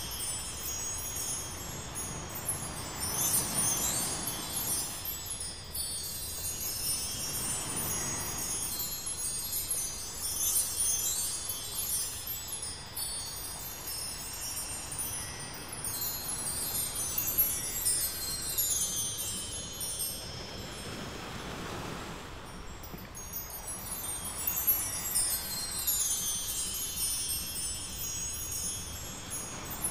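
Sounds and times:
wind chime music: 0.0 - 29.9
soft wash: 13.6 - 29.9.

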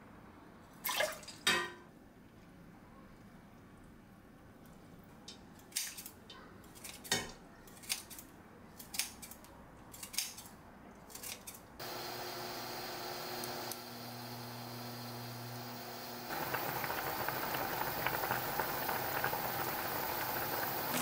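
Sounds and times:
scissors snipping: 6.8 - 10.5, 11.1 - 11.6
steady hiss: 11.8 - 21.0.

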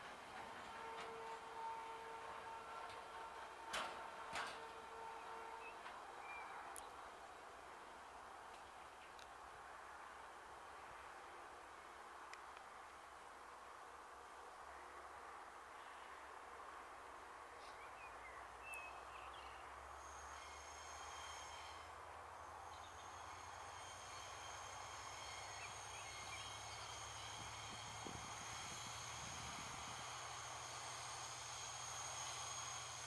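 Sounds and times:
freight train rumbling: 0.0 - 6.6, 22.6 - 33.0.

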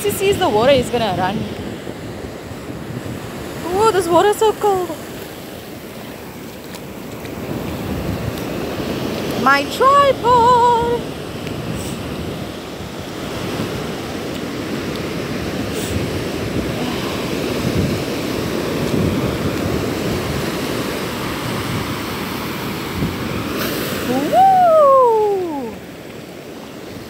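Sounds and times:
ocean surf washing over sand: 0.0 - 27.0
person calling out: 24.1 - 25.8.

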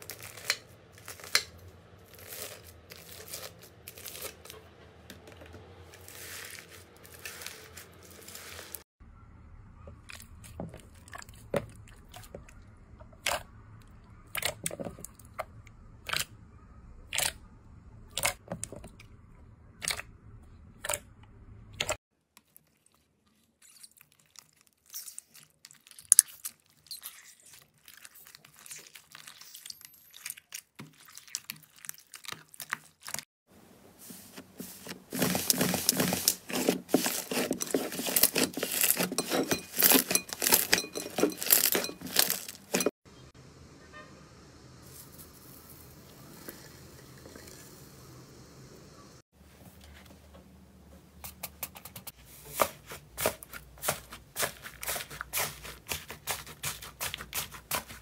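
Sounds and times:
slime squishing crackles: 0.0 - 4.6, 5.9 - 8.8, 22.4 - 33.3, 34.8 - 42.9, 52.6 - 58.0
slime crackling and tearing: 2.0 - 4.5, 23.6 - 33.2, 35.3 - 39.1.

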